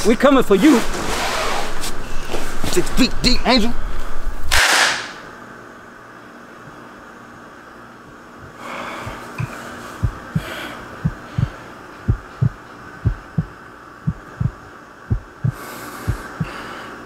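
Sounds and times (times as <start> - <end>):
faint steady hum: 5.2 - 17.0
heartbeat thumps: 9.0 - 16.6.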